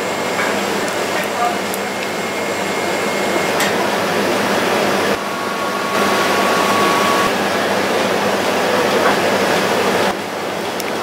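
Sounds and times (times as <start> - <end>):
ice cream machine running: 0.0 - 11.0.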